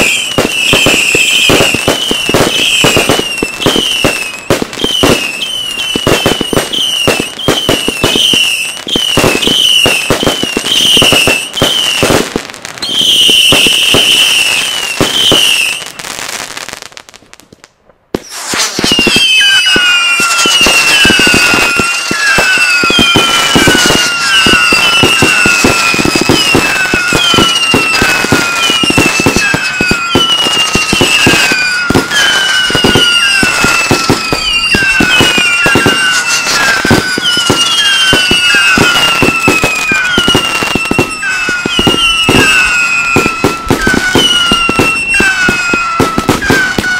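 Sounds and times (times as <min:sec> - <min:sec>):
firework whistles: 0:00.0 - 0:16.8, 0:18.1 - 0:46.9
firework pops and crackles: 0:00.0 - 0:46.9.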